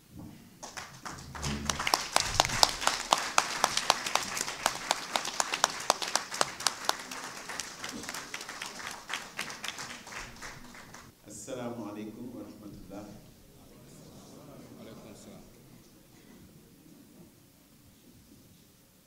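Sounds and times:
audience applauding: 0.6 - 11.1.

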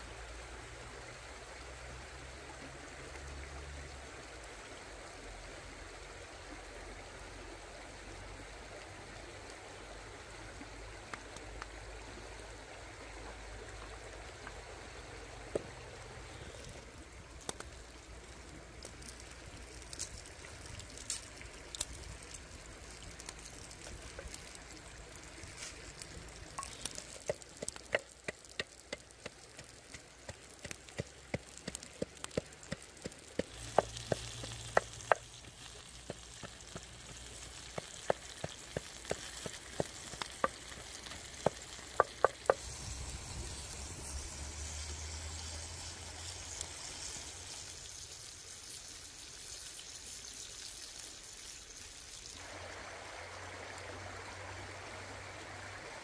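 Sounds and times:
sizzling hiss: 0.0 - 56.0
fire crackling and popping: 15.5 - 52.4.

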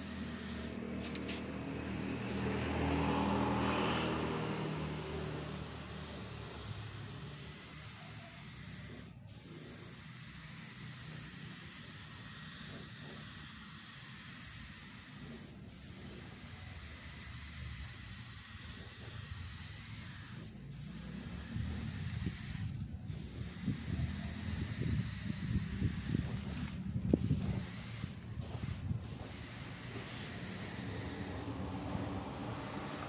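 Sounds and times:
spray gun hissing: 0.0 - 33.0.

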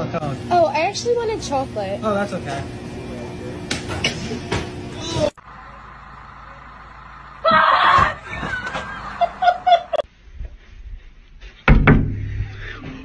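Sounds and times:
low steady hum: 0.0 - 10.0
voices: 0.4 - 10.0
people laughing: 7.4 - 10.1.

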